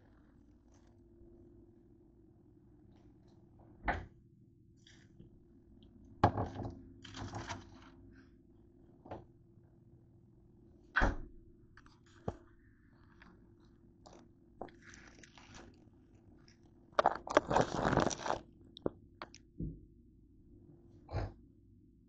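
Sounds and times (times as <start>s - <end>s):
plastic food bag crinkling: 14.1s - 19.4s.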